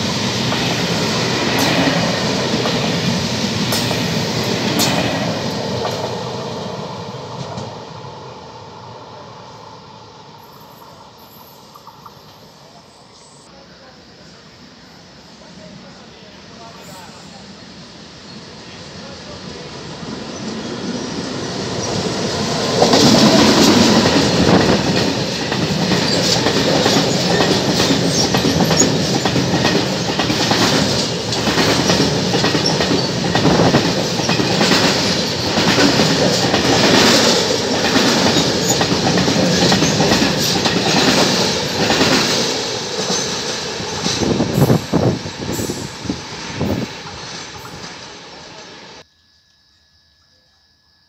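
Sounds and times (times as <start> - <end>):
train wheels rumbling on rail: 0.0 - 12.8, 15.4 - 49.0
wheels clacking over rail joints: 21.7 - 45.2.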